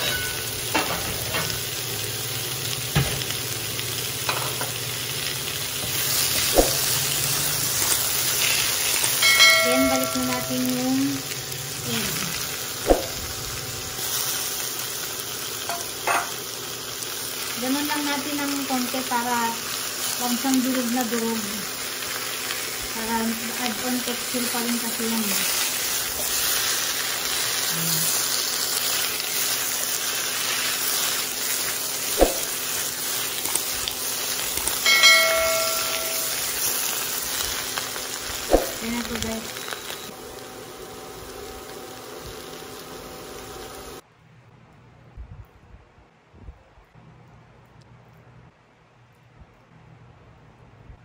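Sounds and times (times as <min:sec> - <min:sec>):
food sizzling in a wok: 0:00.0 - 0:44.0.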